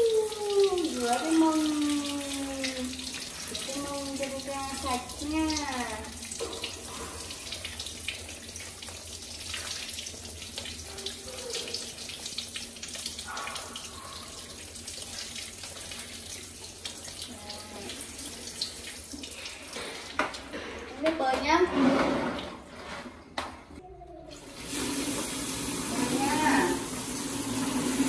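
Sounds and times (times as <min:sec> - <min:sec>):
shower head spraying water: 0:00.0 - 0:08.9, 0:24.4 - 0:28.0
water splashing on tiled floor: 0:00.0 - 0:21.6, 0:24.4 - 0:28.0.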